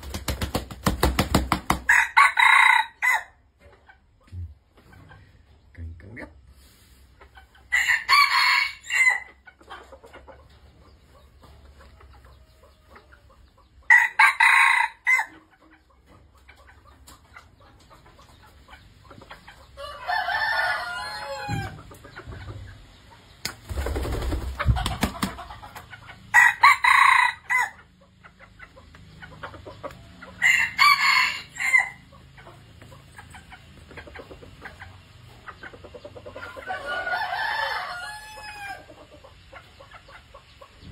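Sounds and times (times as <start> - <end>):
rooster crowing: 1.9 - 3.4, 7.7 - 9.3, 13.9 - 15.3, 19.8 - 21.8, 26.3 - 27.8, 30.4 - 32.0, 36.7 - 38.9.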